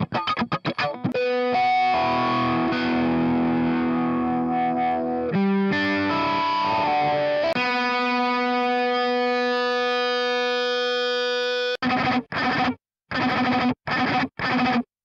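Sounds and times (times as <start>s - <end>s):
distorted electric guitar chords: 0.0s - 14.8s.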